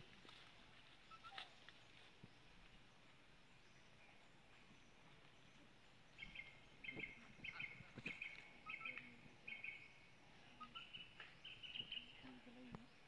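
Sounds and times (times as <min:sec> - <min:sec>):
bird chirping: 0:03.5 - 0:13.0.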